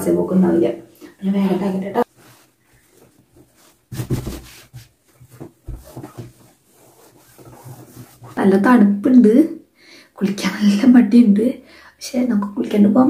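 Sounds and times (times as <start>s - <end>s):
cloth rustling: 2.0s - 8.5s.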